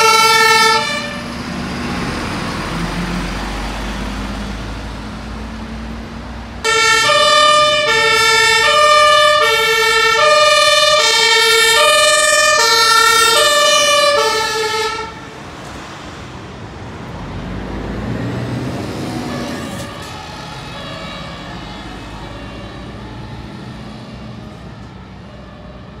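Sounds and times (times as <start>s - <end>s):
two-tone emergency siren: 0.0s - 1.5s, 6.6s - 15.4s, 18.8s - 26.0s
road traffic passing: 0.0s - 26.0s.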